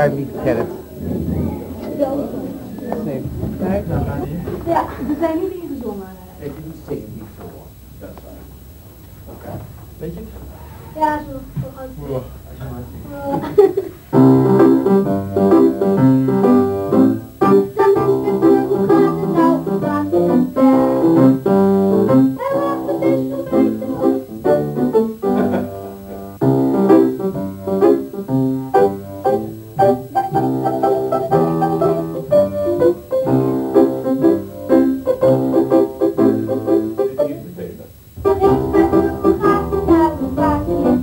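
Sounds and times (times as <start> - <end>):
upright piano playing: 14.1 - 41.0.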